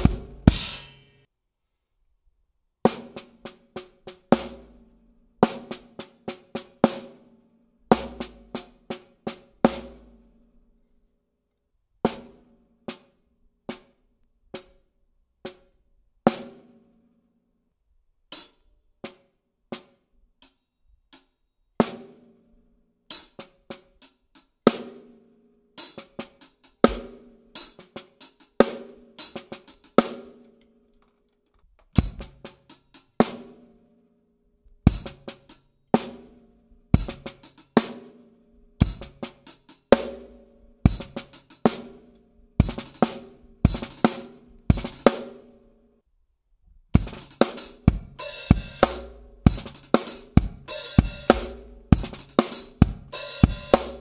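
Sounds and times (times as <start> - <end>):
bass drum thuds: 0.0 - 0.8
snare drum strokes: 0.0 - 1.3, 26.9 - 28.0, 38.8 - 42.0, 42.6 - 45.4, 47.0 - 54.0
stick on cymbal: 0.0 - 1.3, 47.0 - 54.0.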